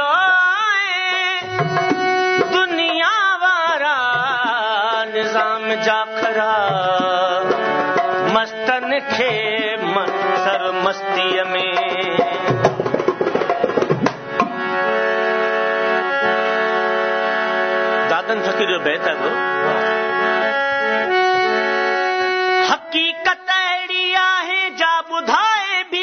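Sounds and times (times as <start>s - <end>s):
harmonium chords: 0.0s - 26.0s
hand drum playing: 1.4s - 3.0s, 11.6s - 14.6s.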